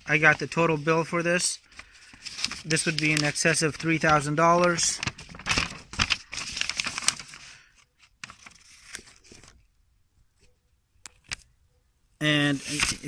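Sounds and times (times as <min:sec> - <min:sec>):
paper sheets rustling and crinkling: 0:00.0 - 0:09.7, 0:12.4 - 0:13.0.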